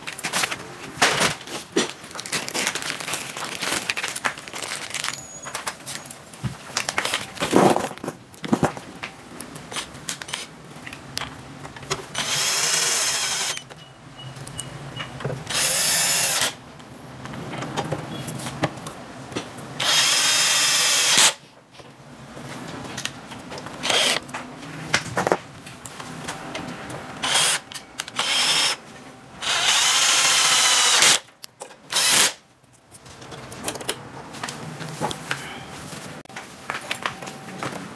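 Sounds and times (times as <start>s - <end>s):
cordless drill driving screws: 12.2s - 13.6s, 15.5s - 16.6s, 19.8s - 21.4s, 23.8s - 24.2s, 27.2s - 28.8s, 29.4s - 31.2s, 31.9s - 32.4s.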